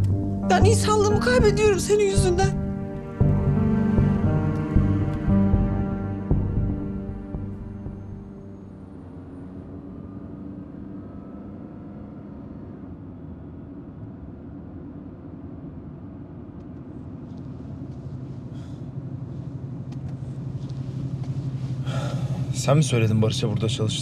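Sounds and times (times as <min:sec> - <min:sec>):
background music: 0:00.0 - 0:10.1
low hum: 0:00.0 - 0:24.0
car driving rumble from inside: 0:14.8 - 0:24.0.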